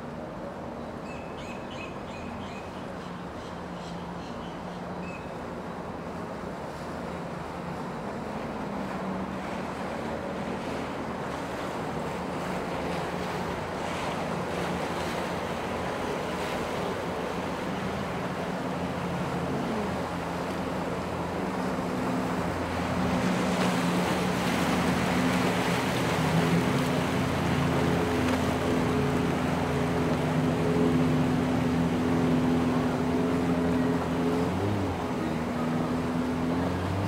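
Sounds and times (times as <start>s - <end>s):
motorboat engines running: 0.0s - 37.0s
waves rushing: 4.8s - 37.0s.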